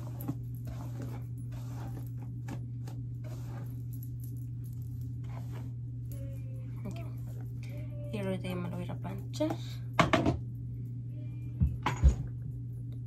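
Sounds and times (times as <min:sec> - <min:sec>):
hairbrush swishing through hair: 0:00.0 - 0:03.9, 0:05.2 - 0:05.8
steady low hum: 0:00.0 - 0:13.0.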